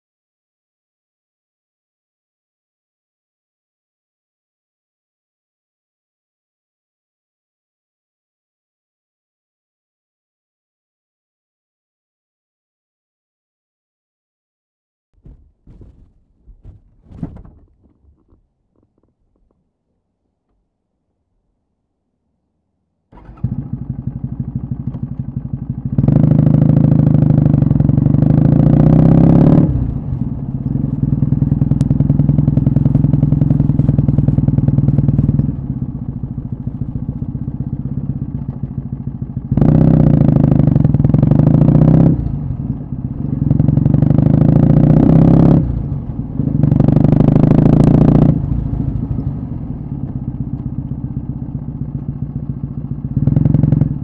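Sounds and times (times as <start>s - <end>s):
motorcycle engine revving: 15.2s - 18.3s, 23.2s - 54.0s.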